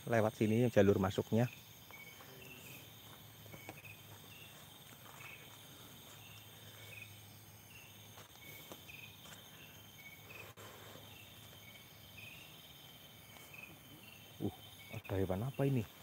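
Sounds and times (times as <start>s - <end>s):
crickets chirping: 0.0s - 16.0s
high insect drone: 0.0s - 16.0s.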